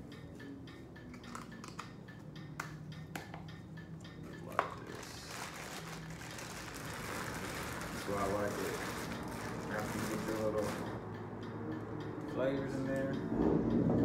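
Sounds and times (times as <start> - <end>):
plastic bag crinkling: 5.0 - 10.8.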